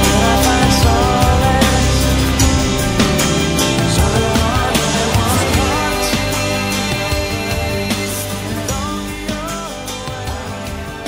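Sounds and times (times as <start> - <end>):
rock song with drum beat: 0.0 - 11.0.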